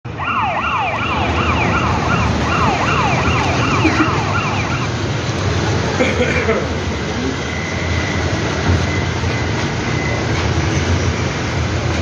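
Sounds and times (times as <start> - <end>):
vehicle siren wailing: 0.1 - 5.2.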